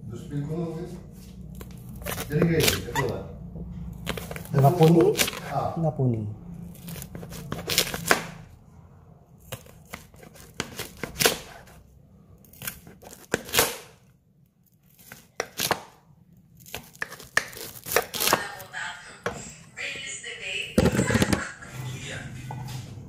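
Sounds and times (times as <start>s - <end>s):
knife chopping corn on board: 9.5s - 11.7s, 16.7s - 18.5s.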